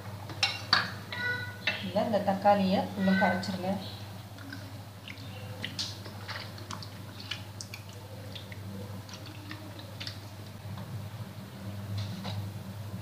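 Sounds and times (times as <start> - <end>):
tomato squelching in water: 4.4 - 10.6.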